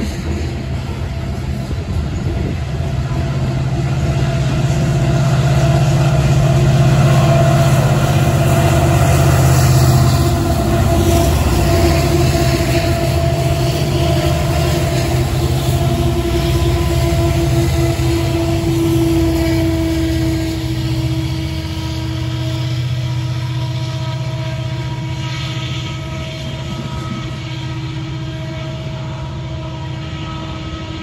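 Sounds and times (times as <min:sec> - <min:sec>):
diesel locomotive drone: 0:00.0 - 0:31.0
train wheels clattering on rails: 0:00.0 - 0:31.0.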